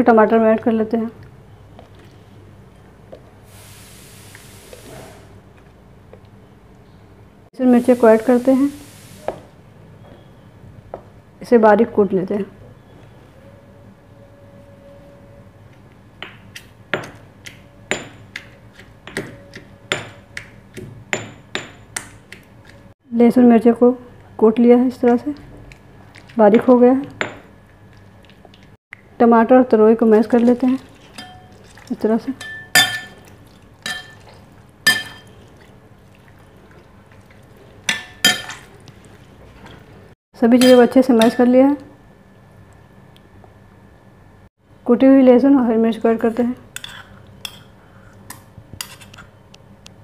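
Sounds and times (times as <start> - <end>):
masher clinking on glass bowl: 32.4 - 33.3, 33.9 - 34.3, 34.9 - 35.3.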